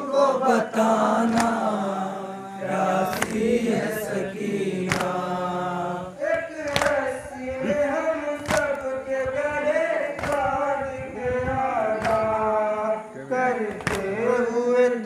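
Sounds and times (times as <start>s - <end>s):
men chanting a lament: 0.0s - 15.0s
hands slapping chests: 1.2s - 1.8s, 2.7s - 4.0s, 4.8s - 5.3s, 6.3s - 7.1s, 8.4s - 8.9s, 10.1s - 10.6s, 12.0s - 12.4s, 13.7s - 14.1s.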